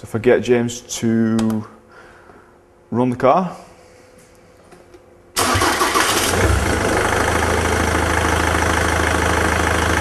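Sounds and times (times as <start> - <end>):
diesel engine starting and idling: 5.4 - 10.0.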